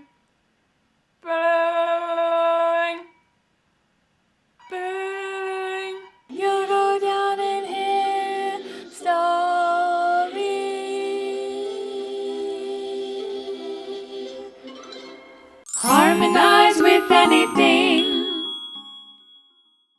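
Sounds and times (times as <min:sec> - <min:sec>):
second melody line: 0:15.7 - 0:19.4
woman singing long notes: 0:15.8 - 0:18.5.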